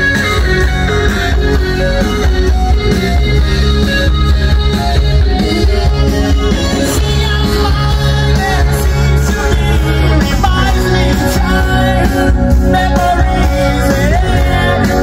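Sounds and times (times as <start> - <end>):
drums: 0.0 - 15.0
electric guitar: 0.0 - 15.0
heavy bass: 0.0 - 15.0
person singing: 4.7 - 15.0.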